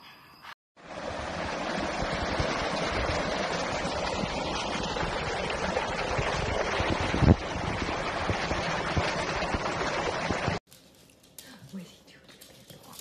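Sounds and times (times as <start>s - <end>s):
water rushing through stone channel: 0.8s - 10.6s
wind buffeting microphone: 1.3s - 10.6s.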